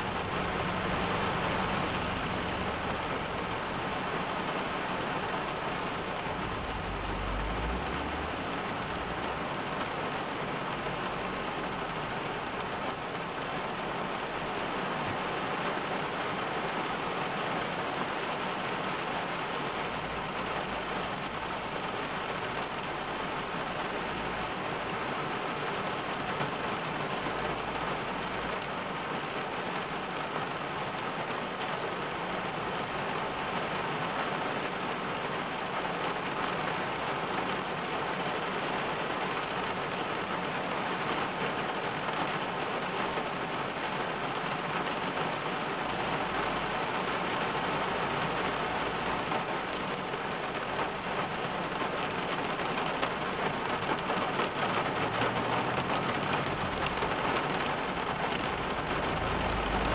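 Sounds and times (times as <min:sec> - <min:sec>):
rain on car roof: 0:00.0 - 0:59.9.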